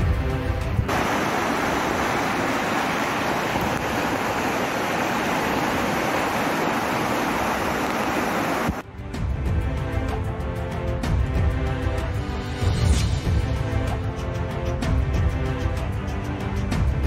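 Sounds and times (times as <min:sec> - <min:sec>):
rushing flooded river: 0:00.8 - 0:08.8.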